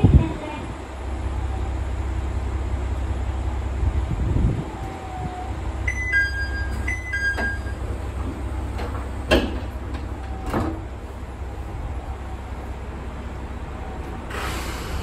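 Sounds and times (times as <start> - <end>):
diesel engine rumble: 0.0 - 15.0
sliding doors clunking shut: 5.8 - 15.0
two-note door chime: 5.9 - 7.9.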